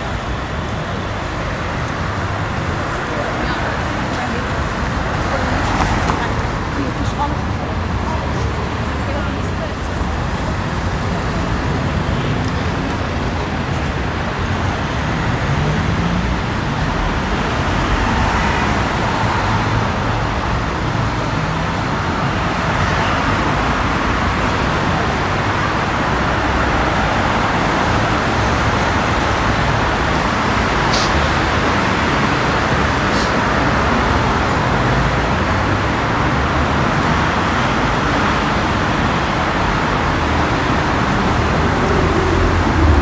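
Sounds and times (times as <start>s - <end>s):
motor vehicles passing: 22.7s - 43.0s.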